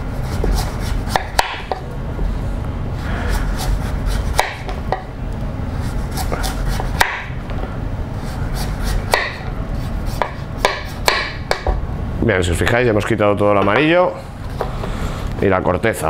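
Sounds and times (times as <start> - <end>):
steady low hum: 0.0 - 16.0
knife scraping through squash skin: 3.0 - 4.5, 5.8 - 7.0, 8.2 - 9.2.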